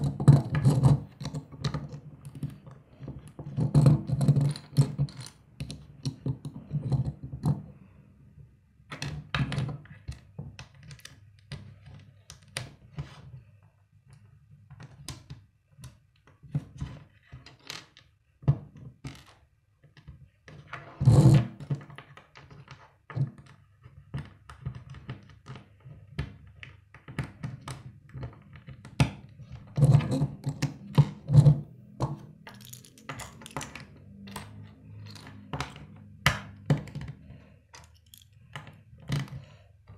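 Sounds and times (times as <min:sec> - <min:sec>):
plastic bricks clicking: 0:32.0 - 0:39.4.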